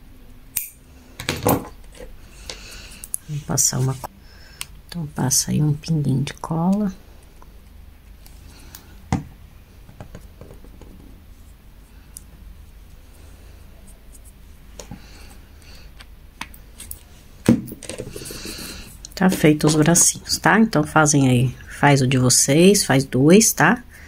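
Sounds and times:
hands scratching and rustling: 17.9 - 20.0.

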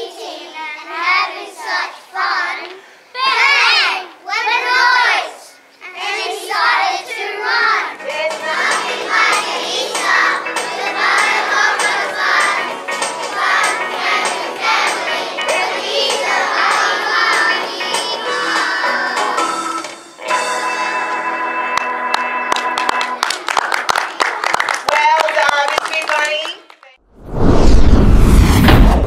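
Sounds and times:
children singing in unison: 5.9 - 19.7
backing music with steady beat: 8.0 - 23.2.

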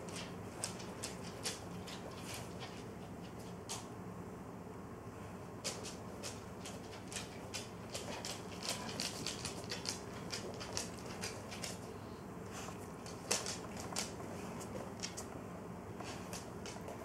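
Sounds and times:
dog mouth clicks and smacks: 5.7 - 11.8, 13.0 - 15.3.

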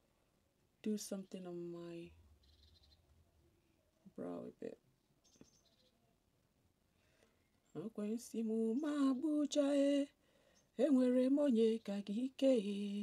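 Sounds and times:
woman singing unaccompanied: 0.8 - 2.1, 7.7 - 10.2, 10.8 - 13.0.

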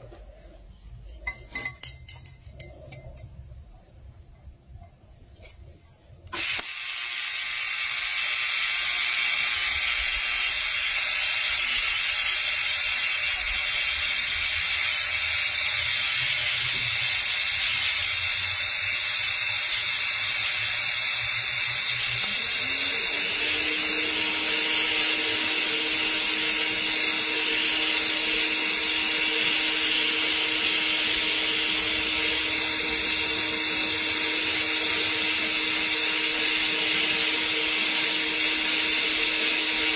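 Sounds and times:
welding arc hissing: 6.3 - 39.9.

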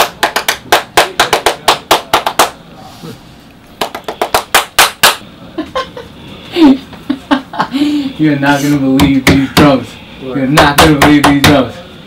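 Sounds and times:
hands clapping in rhythm: 0.0 - 2.6, 3.8 - 5.2.

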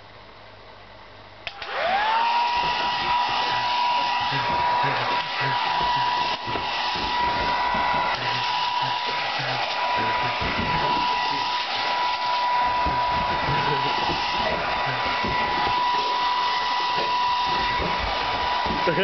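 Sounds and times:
hair dryer switch click: 1.4 - 1.8
hair dryer motor whine: 1.4 - 19.0.

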